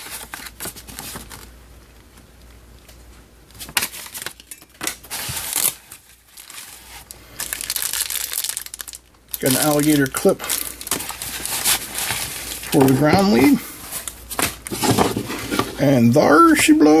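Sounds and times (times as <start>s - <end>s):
paper and plastic rustling: 0.0s - 16.6s.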